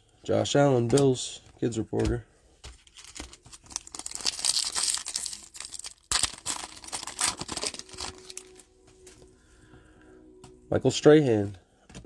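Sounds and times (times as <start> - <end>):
wrapper crinkling and ripping: 2.8 - 9.2.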